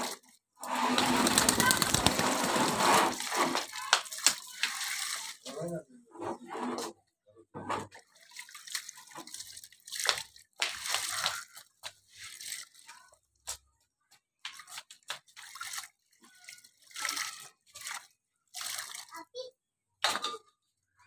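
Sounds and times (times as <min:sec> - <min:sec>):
water splashing in a tub: 0:00.0 - 0:05.7, 0:07.8 - 0:13.4, 0:14.4 - 0:19.5.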